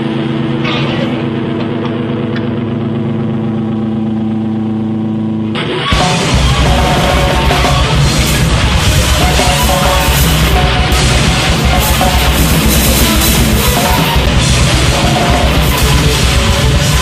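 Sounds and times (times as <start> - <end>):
distorted electric guitars: 0.0 - 17.0
droning electric guitar tone: 0.0 - 17.0
pounding drums: 5.9 - 17.0.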